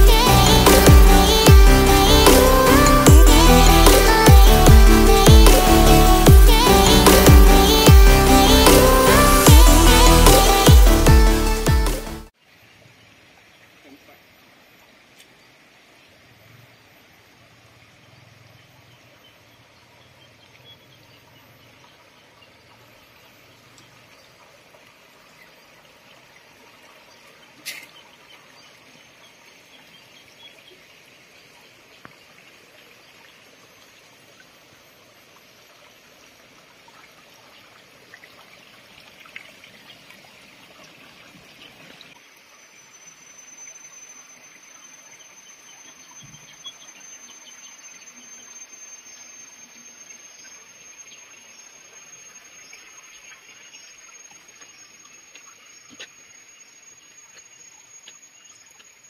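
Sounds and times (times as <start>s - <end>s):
water trickling in channel: 12.3s - 59.0s
high insect whine: 42.2s - 59.0s.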